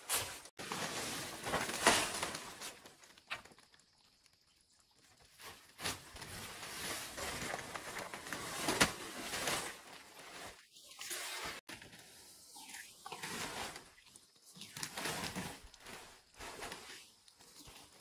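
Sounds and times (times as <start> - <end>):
rustling handling noise: 0.0 - 3.8, 5.2 - 10.7.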